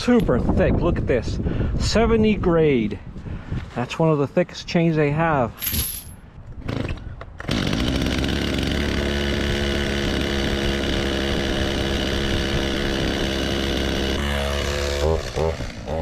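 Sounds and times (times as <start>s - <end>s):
engine running steadily: 7.8s - 16.0s.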